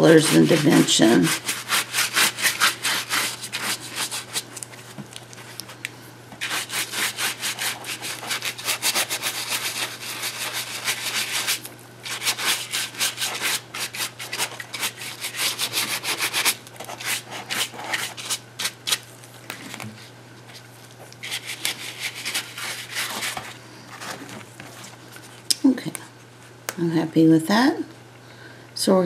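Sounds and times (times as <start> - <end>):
paintbrush scrubbing paper-mache: 0.0 - 4.7, 6.4 - 19.0, 21.2 - 23.5.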